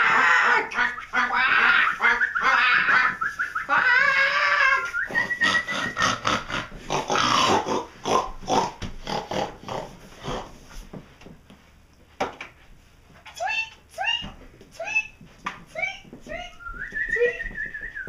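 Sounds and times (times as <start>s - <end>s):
people imitating pig squeals: 0.0s - 7.8s.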